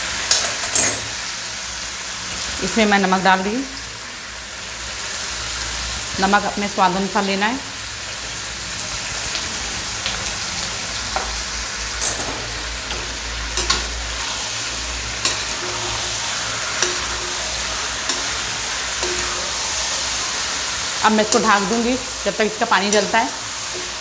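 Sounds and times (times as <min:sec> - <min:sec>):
chicken sizzling in oil: 0:00.0 - 0:24.0
metal ladle scraping a pan: 0:12.0 - 0:21.9.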